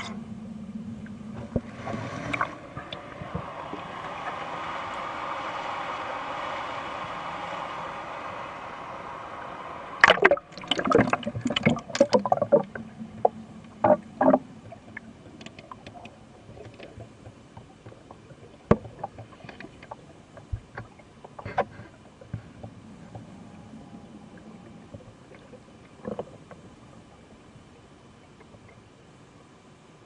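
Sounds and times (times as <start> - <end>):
water splashing and sloshing: 0.0 - 29.2
muffled underwater sound: 0.0 - 30.0
falling water rushing: 1.4 - 16.8
faint underwater clicks: 10.0 - 29.0.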